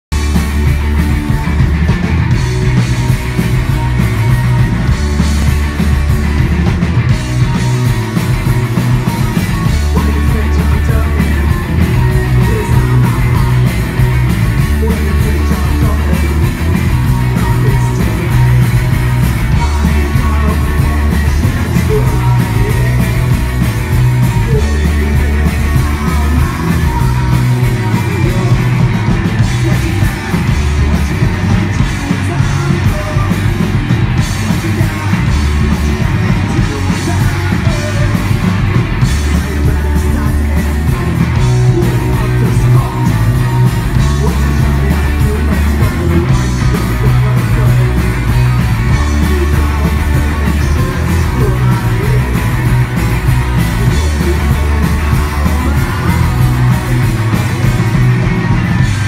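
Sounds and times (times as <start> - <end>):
bass guitar: 0.0 - 59.0
drums: 0.0 - 59.0
electric guitars: 0.1 - 59.0
lead vocal singing: 9.0 - 57.3.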